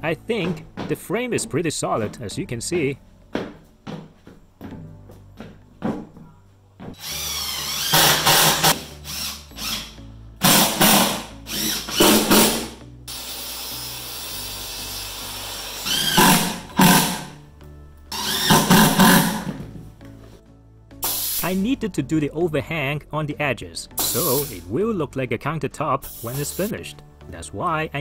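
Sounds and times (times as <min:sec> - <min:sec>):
faint background music: 0:00.0 - 0:28.0
power drill driving screws into wood: 0:07.0 - 0:17.3, 0:18.1 - 0:19.5.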